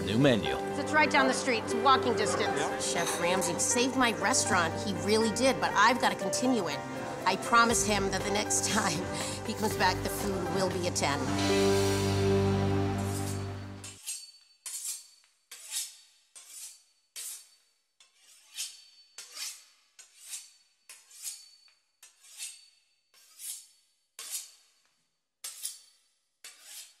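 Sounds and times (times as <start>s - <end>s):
knife sawing crisp pastry: 12.8s - 24.8s, 25.4s - 27.0s.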